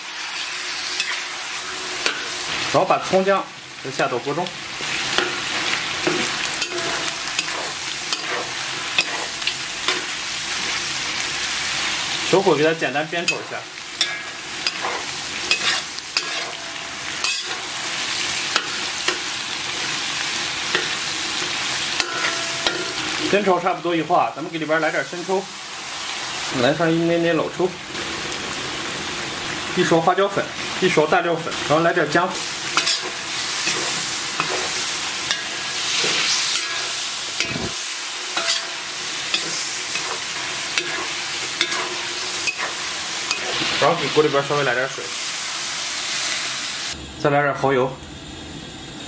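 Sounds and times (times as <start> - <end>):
meat sizzling in oil: 0.0 - 47.0
metal spatula scraping a wok: 4.8 - 11.2, 13.2 - 23.2, 32.4 - 44.0.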